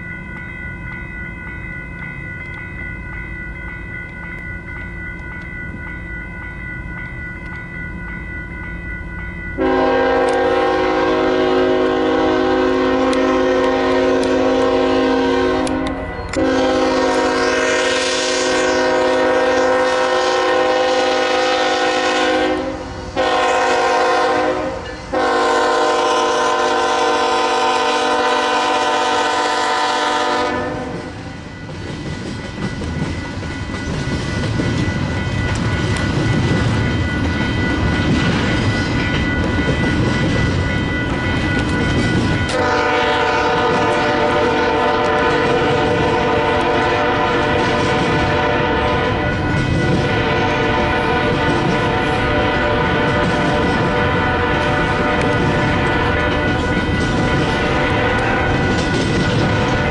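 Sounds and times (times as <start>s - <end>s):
train rumble: 0.0s - 59.9s
locomotive air horn blasts: 9.6s - 31.3s, 42.5s - 49.4s, 50.0s - 56.5s, 57.7s - 58.6s.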